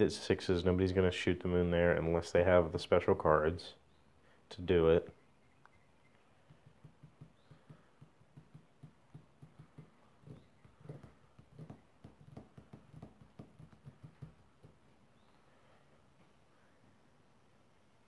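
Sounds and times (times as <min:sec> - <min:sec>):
faint soft tapping: 0:05.6 - 0:15.4.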